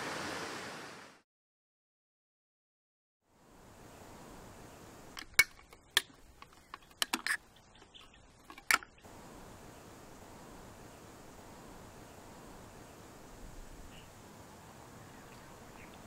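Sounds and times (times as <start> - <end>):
cans opening by pull tabs: 5.1 - 9.0.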